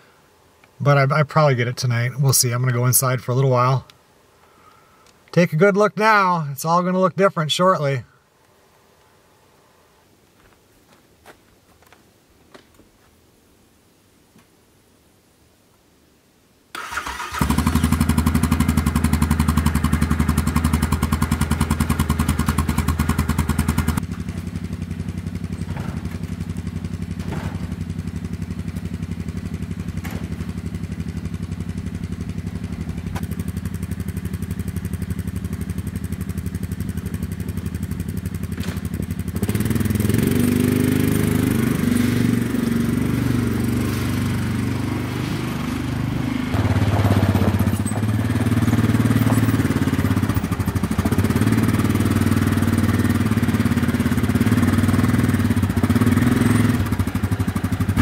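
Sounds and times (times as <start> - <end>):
atv engine idling and revving: 17.4 - 58.0.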